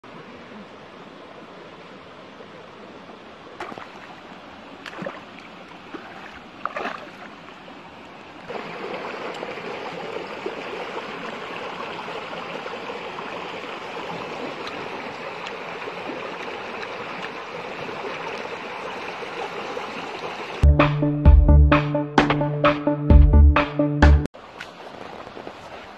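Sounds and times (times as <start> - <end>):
stream running over rocks: 0.0 - 20.6, 24.4 - 25.9.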